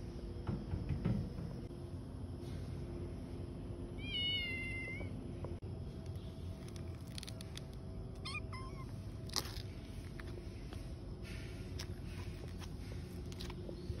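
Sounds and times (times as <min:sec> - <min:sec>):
low outdoor rumble: 0:00.0 - 0:14.0
kittens mewing: 0:04.0 - 0:05.1, 0:08.2 - 0:09.0.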